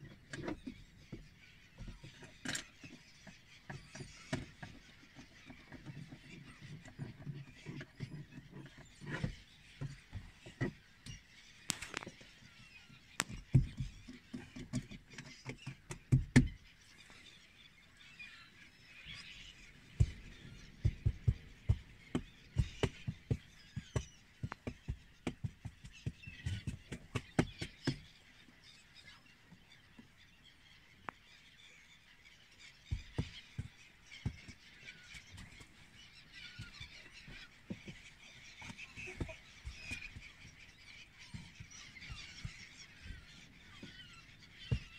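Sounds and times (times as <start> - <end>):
flock of gulls calling: 0.0 - 31.2, 32.7 - 44.9
low thumps and knocks: 19.9 - 28.0.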